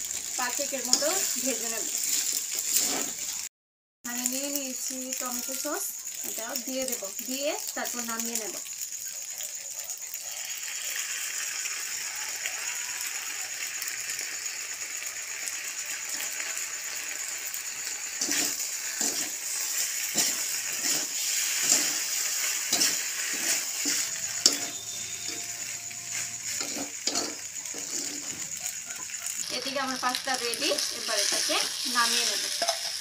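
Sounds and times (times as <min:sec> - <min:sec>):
pasta sizzling in a pan: 0:00.0 - 0:03.5, 0:04.1 - 0:33.0
metal spatula scraping a pan: 0:00.8 - 0:03.4, 0:17.8 - 0:29.5, 0:30.6 - 0:33.0.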